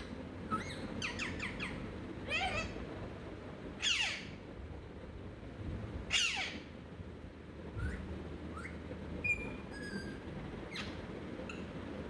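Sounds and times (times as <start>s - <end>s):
parakeet squawking: 0.0s - 2.8s, 3.8s - 4.4s, 6.1s - 6.7s.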